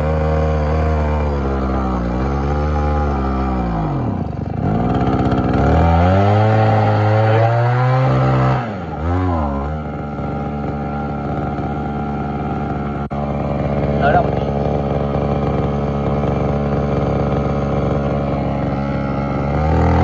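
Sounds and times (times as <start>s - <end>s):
brush-cutter engine revving and idling: 0.0s - 20.0s.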